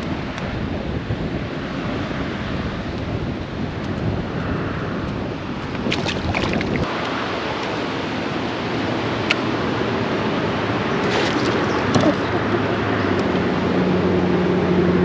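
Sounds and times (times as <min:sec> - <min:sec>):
wind buffeting microphone: 0:00.0 - 0:15.0
water lapping around kayak: 0:05.6 - 0:08.4, 0:09.8 - 0:13.4.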